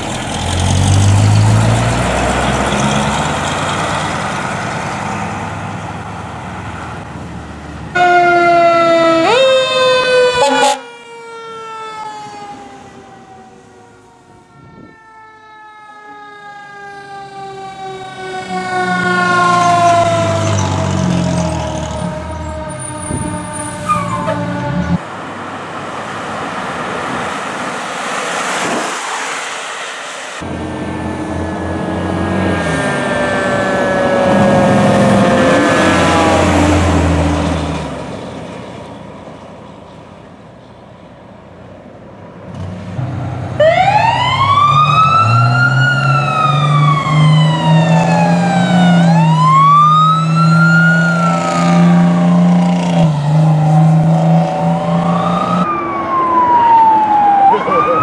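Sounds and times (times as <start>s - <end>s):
vehicle noise: 0.0s - 58.0s
electronic wail siren: 7.9s - 25.0s, 30.5s - 37.0s, 43.6s - 58.0s
siren falling in pitch: 7.9s - 25.0s, 30.4s - 37.0s, 43.6s - 58.0s.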